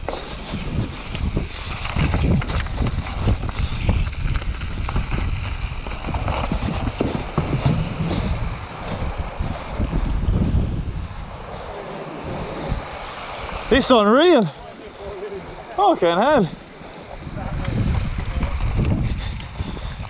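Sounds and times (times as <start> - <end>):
bike knocks and rattles: 0.0 - 10.0
wind buffeting microphone: 0.0 - 20.0
tyres drumming over stones: 5.9 - 8.3.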